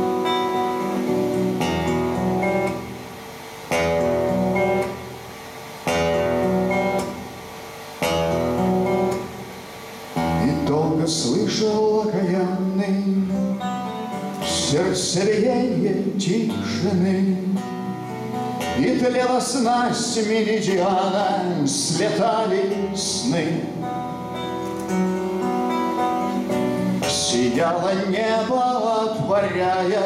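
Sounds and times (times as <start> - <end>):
acoustic guitar chords: 0.0 - 30.0
man singing: 10.4 - 13.7, 14.4 - 17.9, 18.6 - 23.9, 27.0 - 30.0.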